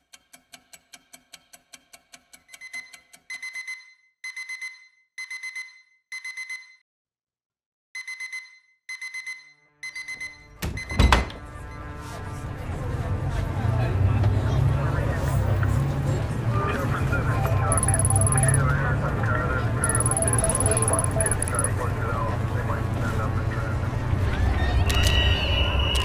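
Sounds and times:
phone alarm beeping: 2.5 - 6.8, 8.0 - 11.1, 17.5 - 18.7, 19.8 - 21.8
fast ticking: 17.7 - 18.6, 19.8 - 21.8.

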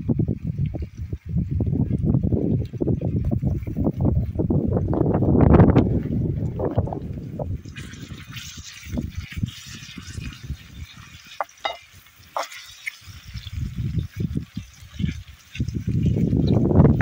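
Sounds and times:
vegetables sizzling in oil: 7.6 - 17.0
wet stirring knocks: 11.4 - 12.7.

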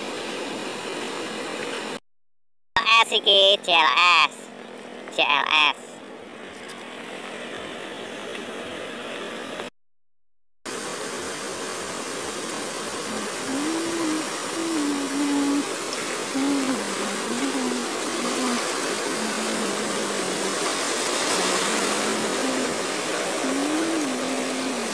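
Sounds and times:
water rushing over weir: 0.0 - 2.0, 10.7 - 24.9.

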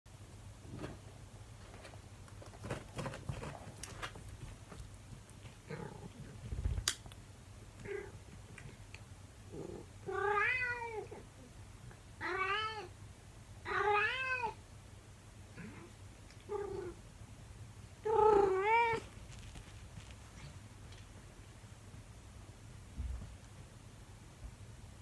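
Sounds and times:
cat meowing: 10.1 - 11.1, 13.7 - 14.6, 18.1 - 19.0.

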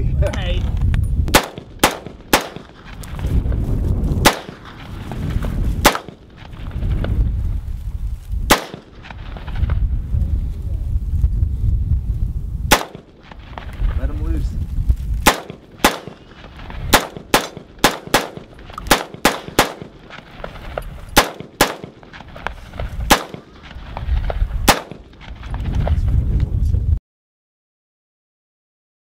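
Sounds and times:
rifle gunshots: 1.3 - 2.9, 4.2 - 4.8, 5.8 - 6.4, 8.5 - 9.1, 12.7 - 13.4, 15.2 - 20.4, 21.1 - 22.3, 23.0 - 23.8, 24.6 - 25.2.

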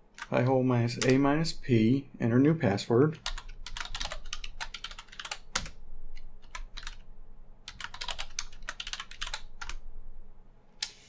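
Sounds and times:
typing on computer keyboard: 3.2 - 5.8, 6.4 - 7.0, 7.7 - 9.8.

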